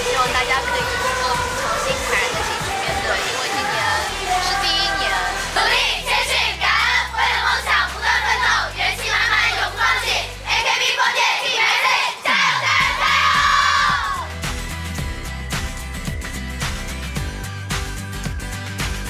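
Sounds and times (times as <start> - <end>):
women shouting a chant in unison: 0.0 - 7.4, 9.4 - 14.3
low music bass: 12.8 - 19.0.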